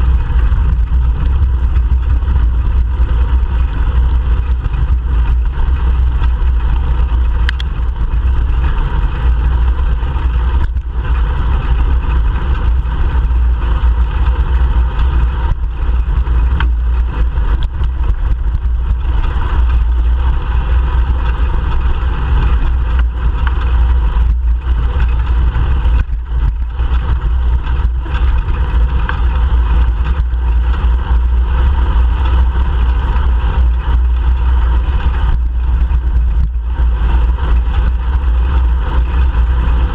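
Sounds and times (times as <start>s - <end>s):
road and tyre noise: 0.0s - 39.9s
wind buffeting microphone: 0.0s - 39.9s.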